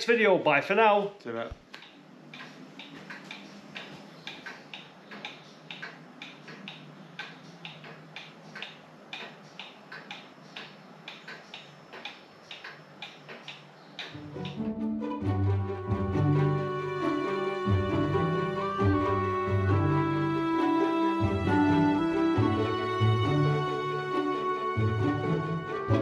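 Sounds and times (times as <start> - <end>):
pendulum clocks ticking: 1.7 - 14.8
music: 14.2 - 26.0.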